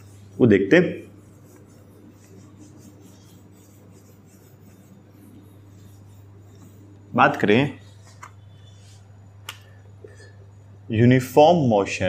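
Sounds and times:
eraser rubbing whiteboard: 0:00.0 - 0:09.0
steady low hum: 0:00.0 - 0:12.0.

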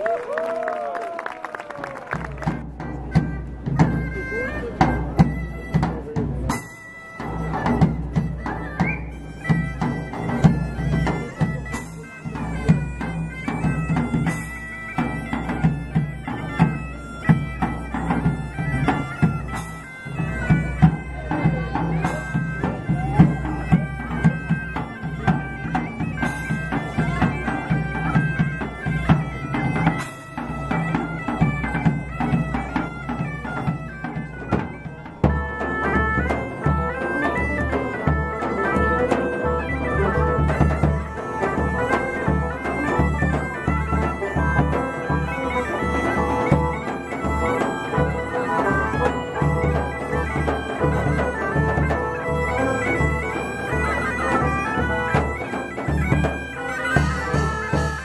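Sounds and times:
bagpipes playing folk tune: 0:02.2 - 0:58.0
drum strokes: 0:02.4 - 0:58.0.

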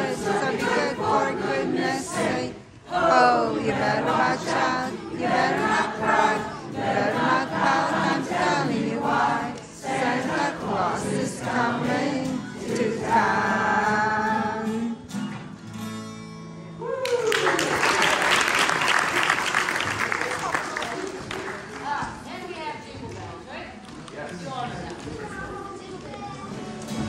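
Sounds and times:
mixed choir singing: 0:00.0 - 0:15.1.

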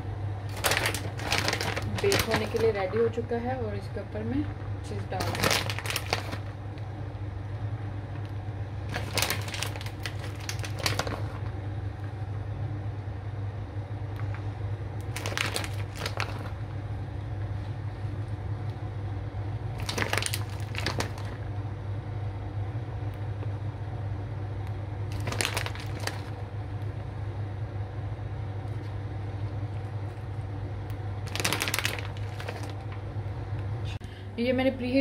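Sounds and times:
steady low hum: 0:00.0 - 0:35.0
plastic packet crinkling: 0:00.5 - 0:03.0, 0:05.0 - 0:06.8, 0:08.9 - 0:11.5, 0:15.0 - 0:16.7, 0:19.8 - 0:21.4, 0:25.1 - 0:26.4, 0:31.2 - 0:33.0.

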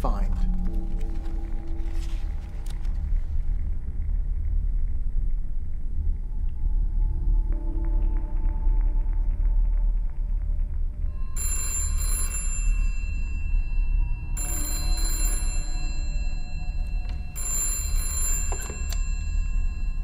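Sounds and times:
low steady drone: 0:00.0 - 0:12.1
telephone bell ringing: 0:11.2 - 0:20.0.

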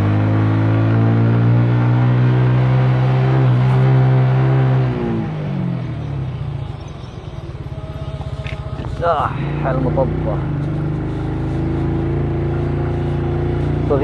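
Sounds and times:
car engine running: 0:03.4 - 0:14.0.

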